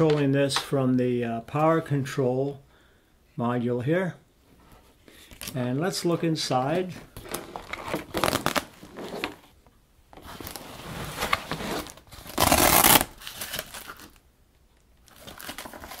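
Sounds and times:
fabric rustling and crinkling: 6.9s - 14.2s
hook-and-loop rip: 12.3s - 13.1s.

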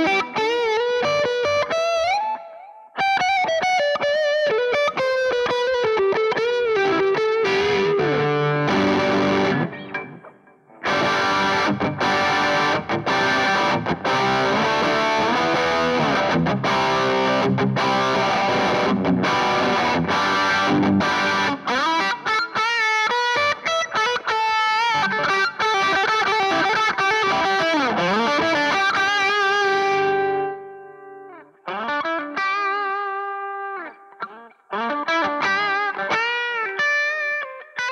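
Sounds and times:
distorted electric guitar lead: 0.0s - 37.9s.

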